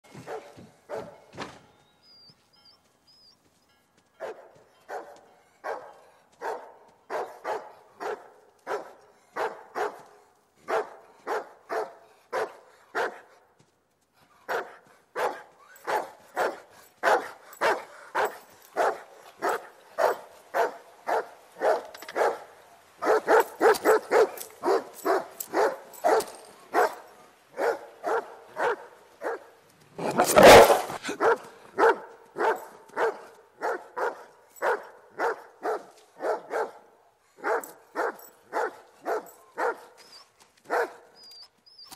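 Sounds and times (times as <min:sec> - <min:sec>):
dog barking: 0:00.1 - 0:01.3, 0:04.2 - 0:13.4, 0:14.5 - 0:40.0, 0:40.7 - 0:41.2.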